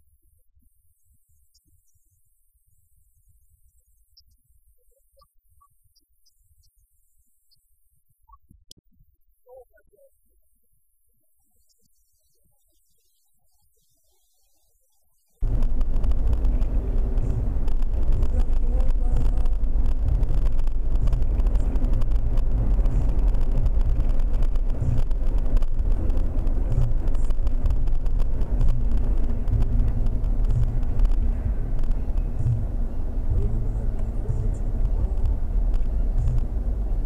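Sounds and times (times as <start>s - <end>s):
car engine and road noise: 15.4s - 37.0s.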